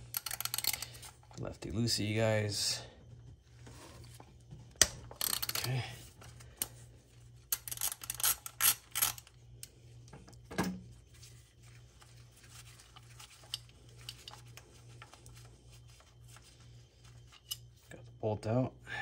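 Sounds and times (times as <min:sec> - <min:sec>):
ratchet clicking and rattling: 0:00.0 - 0:01.2, 0:04.8 - 0:05.8, 0:07.5 - 0:09.3.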